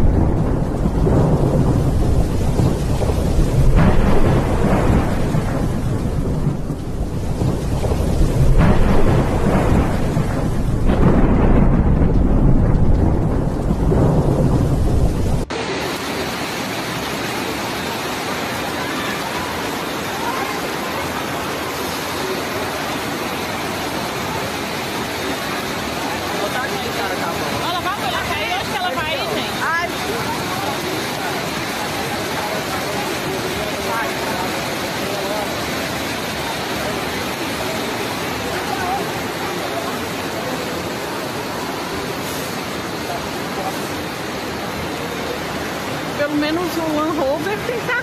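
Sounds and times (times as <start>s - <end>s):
low rumble: 0.0s - 15.6s
heavy rain: 0.0s - 48.0s
running floodwater: 0.0s - 48.0s.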